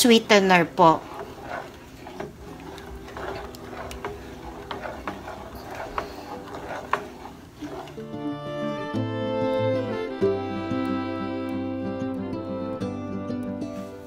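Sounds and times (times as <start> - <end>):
wooden spoon scraping a metal pan: 0.0 - 8.8
background music: 7.8 - 14.0.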